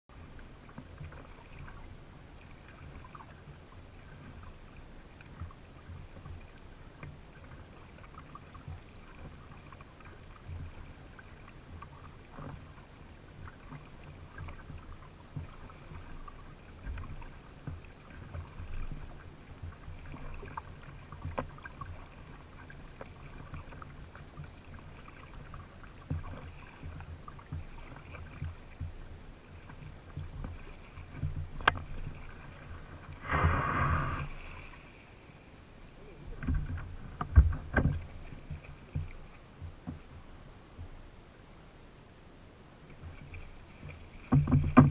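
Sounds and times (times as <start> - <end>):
small knocks and splashes: 0.1 - 33.5, 36.3 - 41.0, 42.9 - 44.9
paddle strokes in water: 0.1 - 44.9
water lapping at hull: 0.1 - 44.9
steady low rumble: 31.3 - 37.7.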